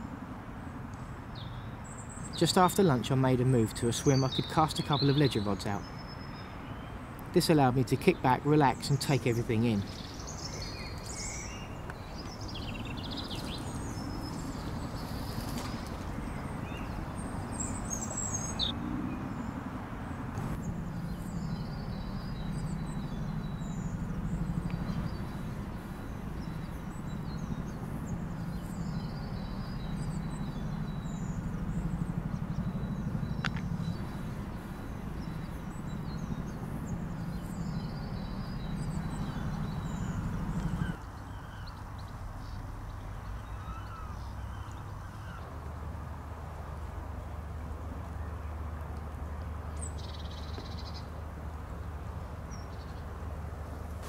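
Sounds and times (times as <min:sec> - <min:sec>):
small songbirds chirping: 0:00.0 - 0:45.8, 0:49.3 - 0:54.0.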